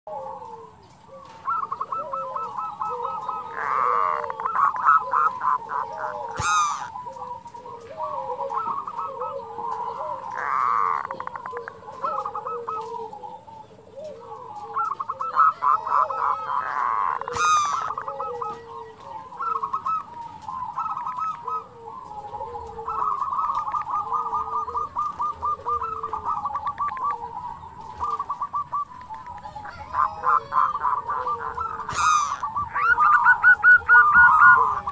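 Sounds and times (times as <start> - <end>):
dove cooing: 0.1 - 34.9
dove rattling call: 0.1 - 34.9.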